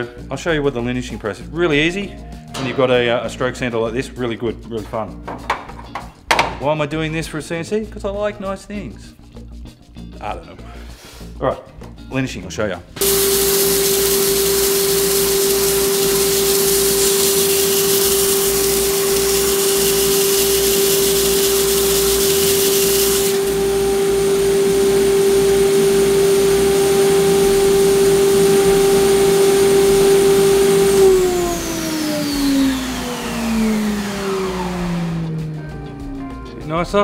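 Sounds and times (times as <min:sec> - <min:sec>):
sanding hiss: 0:13.0 - 0:35.4
sander motor hum: 0:13.0 - 0:36.2
sander winding down: 0:13.0 - 0:36.2.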